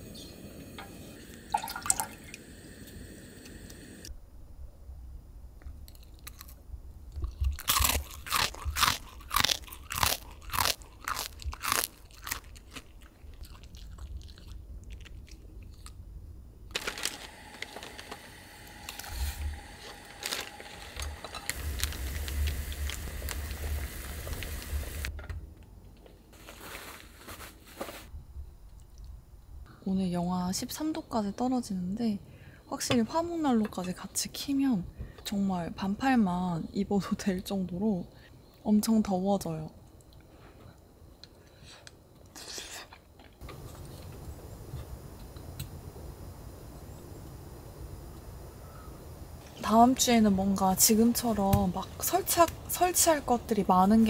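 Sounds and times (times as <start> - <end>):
steady hiss: 0.0 - 4.2, 16.8 - 25.1, 41.4 - 54.0
dog crunching and chewing: 7.2 - 16.0.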